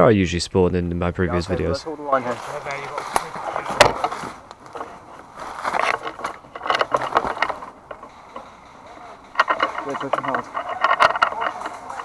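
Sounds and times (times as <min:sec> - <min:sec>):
rustling through undergrowth: 0:01.4 - 0:12.0
twig snapping: 0:02.9 - 0:12.0.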